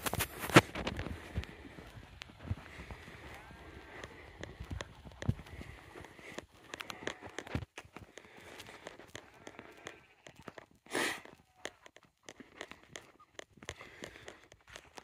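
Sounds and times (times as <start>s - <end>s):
footsteps on grass path: 0.0s - 15.0s.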